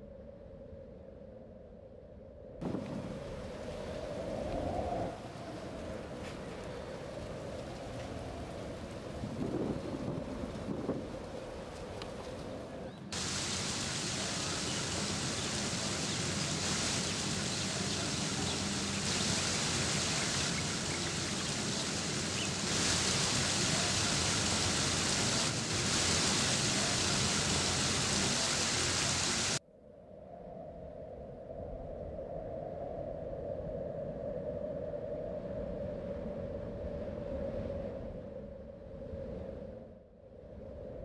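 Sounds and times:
waterfall rushing over stone: 13.2s - 29.6s.

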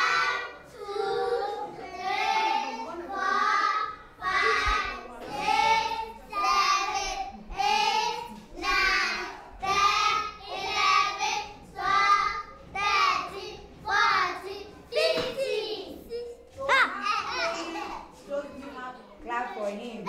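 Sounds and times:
children singing together: 0.0s - 16.0s.

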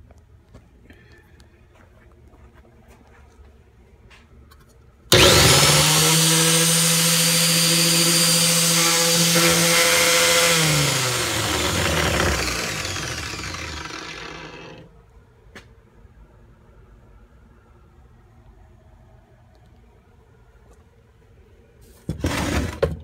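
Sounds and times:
angle grinder whine: 5.1s - 14.9s.

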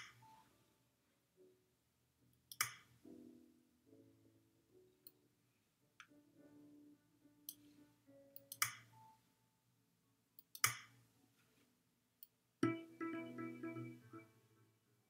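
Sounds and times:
sharp clicks: 2.5s - 3.0s, 10.4s - 11.0s.

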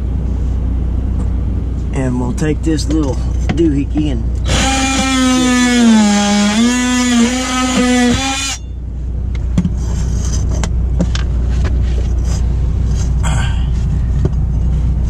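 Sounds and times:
steady low hum: 0.0s - 15.0s
cordless drill whining under load: 4.4s - 8.6s.

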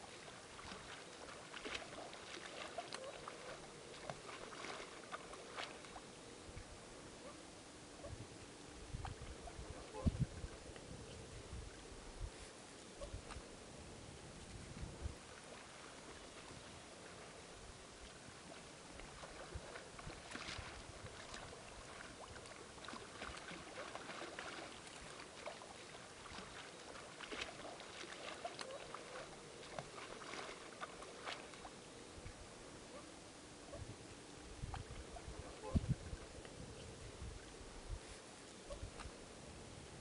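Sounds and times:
small splashes and clicks: 0.0s - 6.1s, 18.0s - 31.8s, 38.4s - 39.2s
river water lapping and trickling: 0.0s - 40.0s.

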